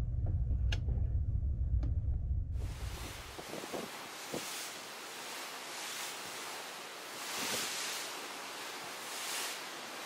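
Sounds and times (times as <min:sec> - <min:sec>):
water rushing along ship hull: 0:02.6 - 0:10.0
wind: 0:02.6 - 0:10.0.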